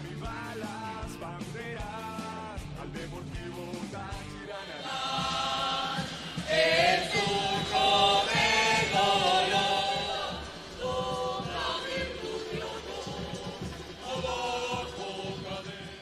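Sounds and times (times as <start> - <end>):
choir singing anthem: 3.8 - 16.0.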